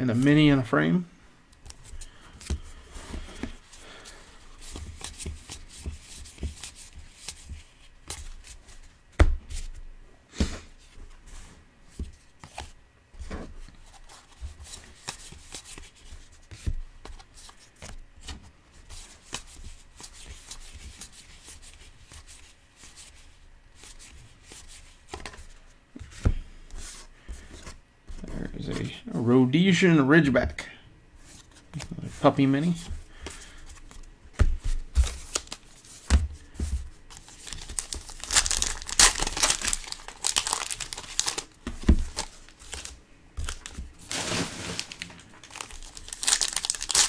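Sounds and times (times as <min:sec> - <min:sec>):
cards rustling: 0:13.8 - 0:23.0, 0:31.2 - 0:47.0.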